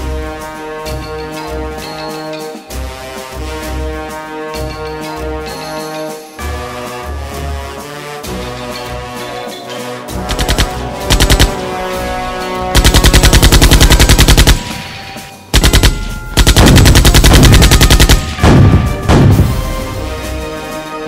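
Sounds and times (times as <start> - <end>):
music: 0.0 - 21.0
machine-gun fire: 10.2 - 19.7.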